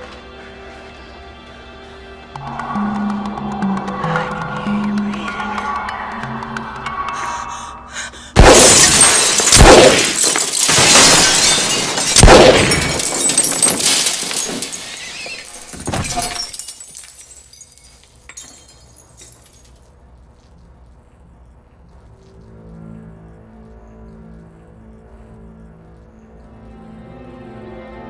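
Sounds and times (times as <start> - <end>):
gunshots: 8.4 - 13.5
glass shattering: 8.4 - 19.8.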